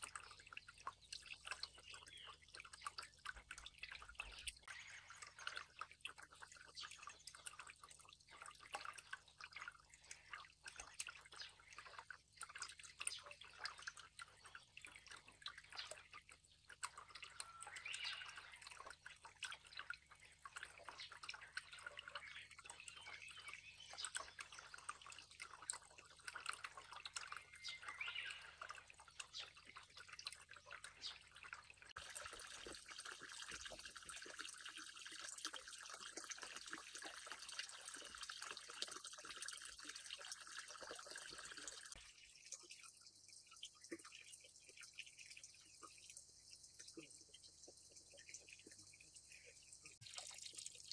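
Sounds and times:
water dripping into pond: 0.0s - 50.9s.

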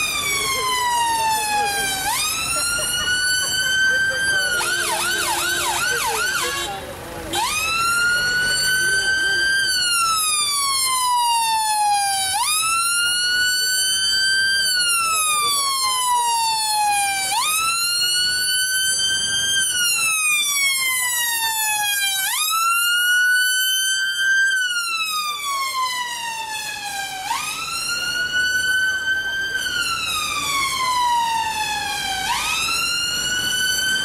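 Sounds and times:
ambulance siren wailing: 0.0s - 34.0s.

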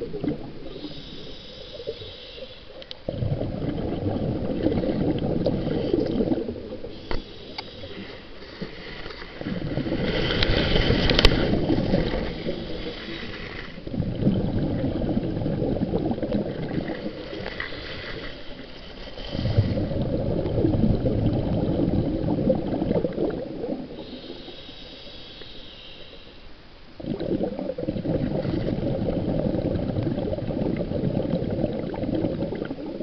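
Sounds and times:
exhaled bubbles gurgling: 0.0s - 25.2s, 26.9s - 33.0s
regulator inhale hiss: 0.7s - 2.8s, 6.9s - 9.1s, 12.4s - 13.8s, 24.0s - 26.6s.

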